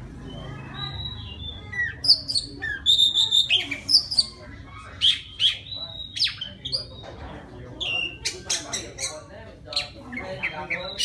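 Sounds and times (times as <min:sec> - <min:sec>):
bird whistles and chirps: 0:00.2 - 0:07.2.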